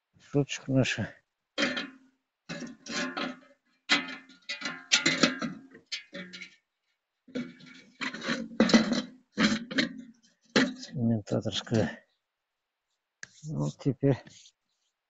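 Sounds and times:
wire grill grates clanking on metal: 1.6s - 6.6s, 7.4s - 11.0s.

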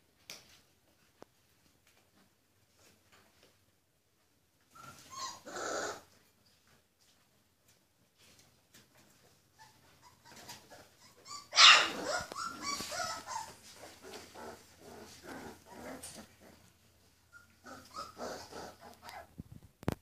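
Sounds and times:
puppies growling and yipping: 4.8s - 6.2s, 9.6s - 19.3s.

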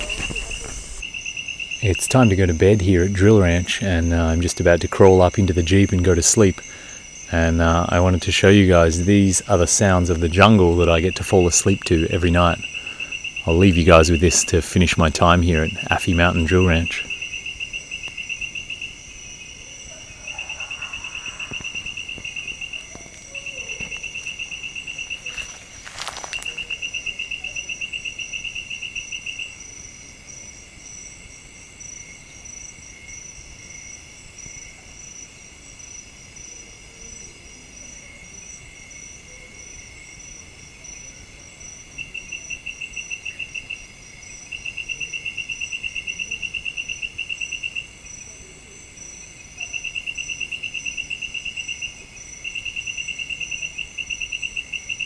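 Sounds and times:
insect pulsing trill: 0.0s - 31.1s, 38.0s - 55.0s
high-pitched insect buzz: 20.4s - 29.5s.

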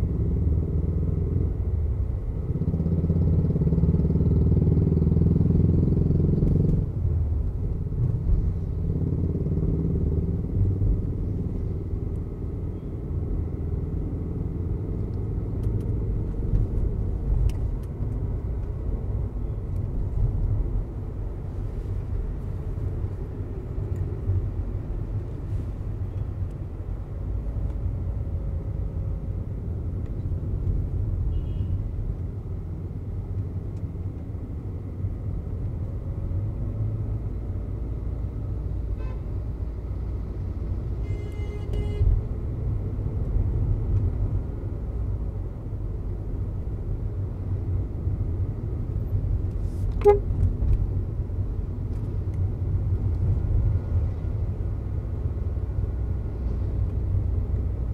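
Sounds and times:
engine and road drone: 0.0s - 57.9s
vehicle horn: 31.3s - 31.8s, 39.0s - 39.3s, 41.0s - 42.2s, 50.0s - 50.3s.

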